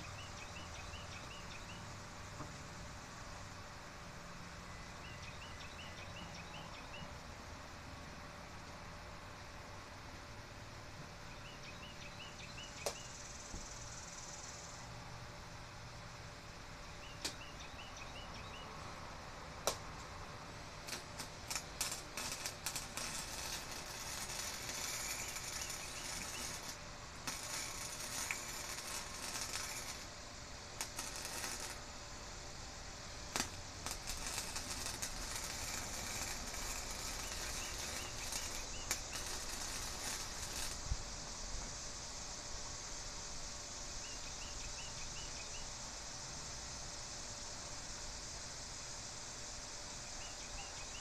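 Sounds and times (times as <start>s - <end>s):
arc welding crackling: 11.4s - 14.8s, 19.6s - 42.3s.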